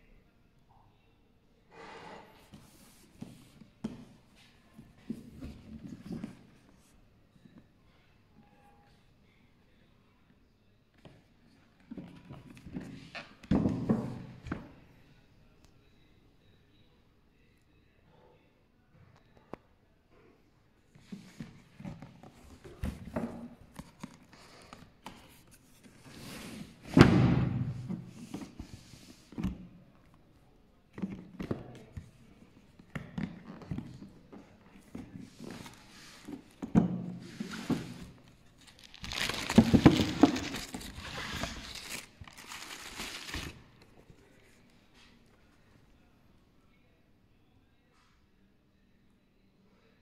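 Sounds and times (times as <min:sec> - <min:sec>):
paper crinkling and rustling: 0:37.4 - 0:44.3
cardboard box being handled: 0:38.8 - 0:43.6.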